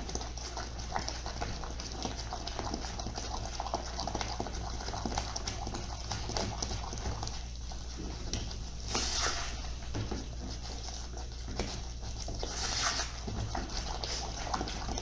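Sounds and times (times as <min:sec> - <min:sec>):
spatula stirring in pan: 0:00.0 - 0:15.0
thick mixture boiling and popping: 0:00.0 - 0:15.0.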